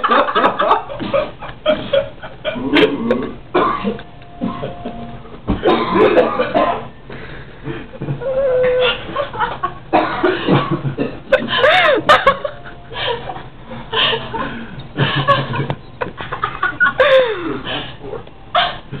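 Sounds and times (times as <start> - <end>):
man coughing hard: 2.7 - 4.7, 5.5 - 6.9, 9.9 - 12.5.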